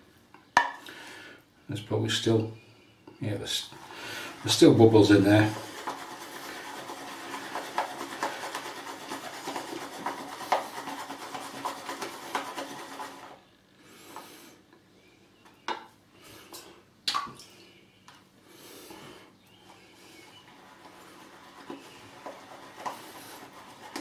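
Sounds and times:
brush swishing lather in bowl: 3.7 - 13.4, 20.1 - 24.0.

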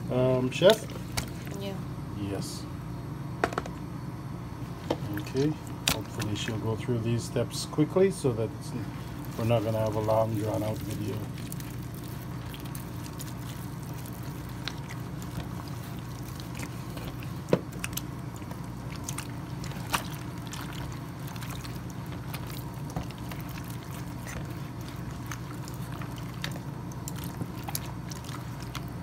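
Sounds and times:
steady low hum: 0.0 - 29.0
hands rubbing wet meat: 8.8 - 29.0.

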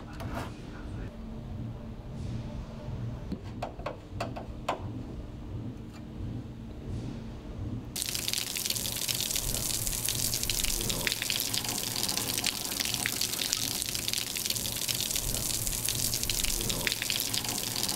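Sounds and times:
water running and splashing: 8.0 - 17.9.

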